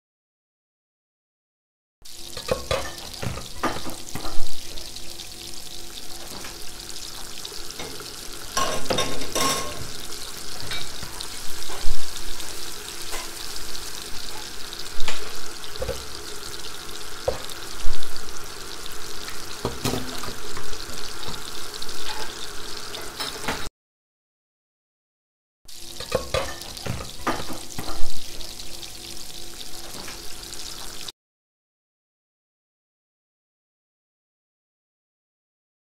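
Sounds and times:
oil sizzling in a frying pan: 0:02.0 - 0:23.7, 0:25.7 - 0:31.1
utensils clattering against pots: 0:02.4 - 0:04.6, 0:07.8 - 0:10.0, 0:10.6 - 0:12.0, 0:13.0 - 0:13.4, 0:14.3 - 0:16.2, 0:19.6 - 0:23.7, 0:26.0 - 0:28.3.

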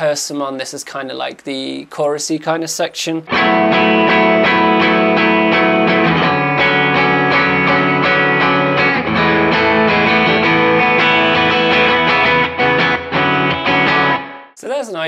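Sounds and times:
electric guitar arpeggios: 0:03.3 - 0:14.6.

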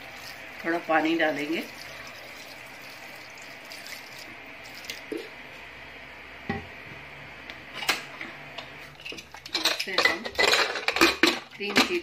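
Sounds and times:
water pouring into pot: 0:00.0 - 0:05.3.

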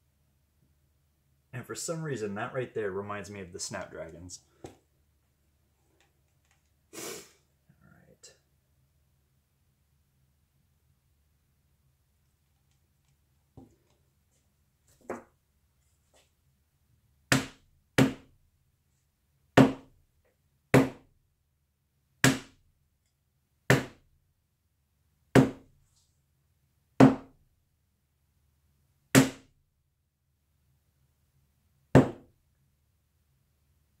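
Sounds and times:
hammer knocking on hard panel: 0:25.4 - 0:25.6, 0:27.0 - 0:27.3, 0:32.0 - 0:32.3.

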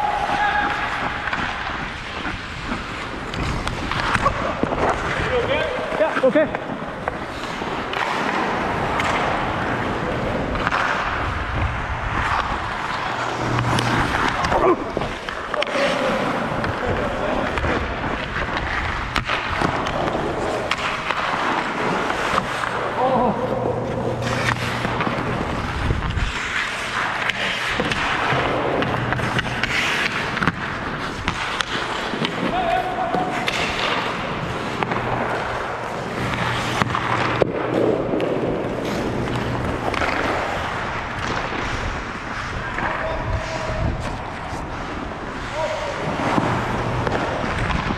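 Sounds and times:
hockey sticks and puck clacking: 0:00.0 - 0:47.9
ice skate blades scraping ice: 0:00.0 - 0:47.9.

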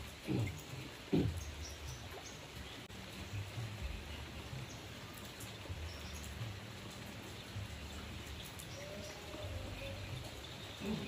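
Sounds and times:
rain hissing on leaves: 0:00.0 - 0:11.0.

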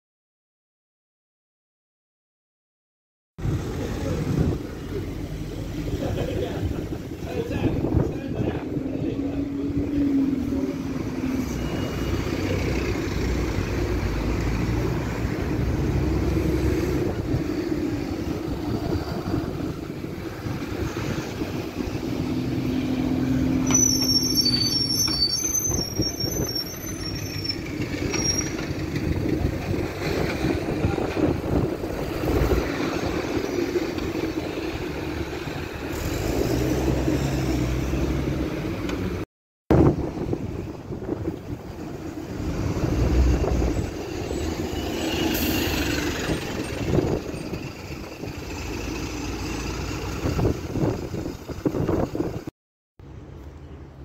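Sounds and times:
road traffic passing: 0:03.4 - 0:54.0
high wavering squeal: 0:09.5 - 0:12.7, 0:22.7 - 0:28.6.

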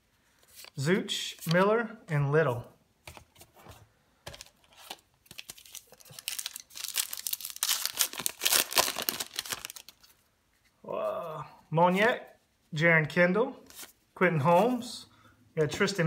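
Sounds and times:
wrapper being torn and crinkled: 0:04.4 - 0:10.1.

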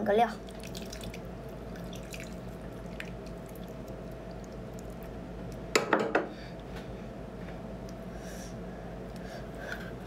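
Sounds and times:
steady low hum: 0:00.0 - 0:10.0
wet drips and squelches: 0:00.4 - 0:05.6.

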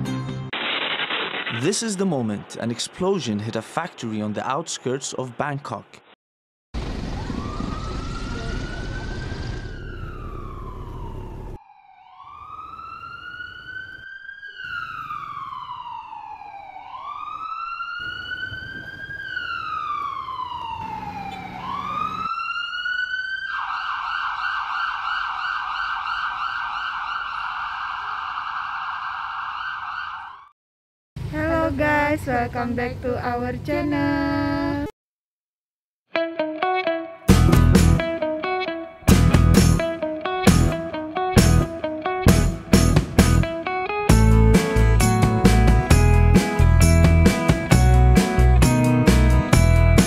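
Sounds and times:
emergency siren wailing: 0:06.8 - 0:30.5, 0:37.6 - 0:42.7.

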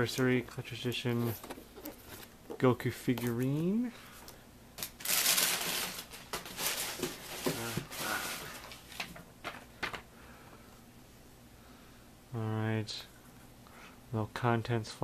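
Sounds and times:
paper and cardboard rustling: 0:05.0 - 0:10.0.

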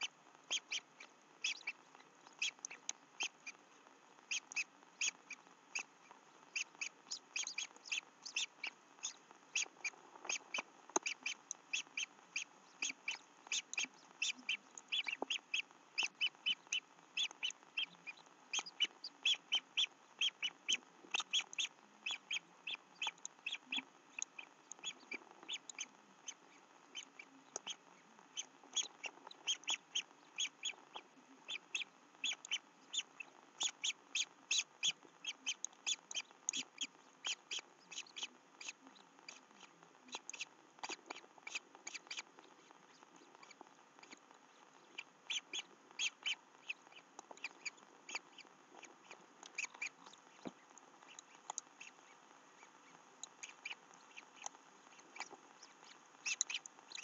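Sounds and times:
stork chicks calling: 0:00.0 - 0:03.6, 0:04.2 - 0:57.0.

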